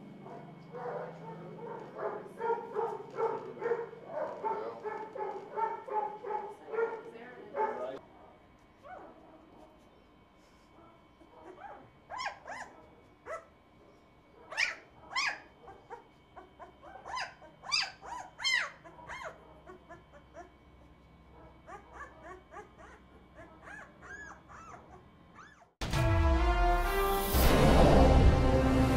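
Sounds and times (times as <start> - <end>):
puppies squeaking and yelping: 11.5 - 13.5, 14.5 - 20.6, 21.6 - 25.8.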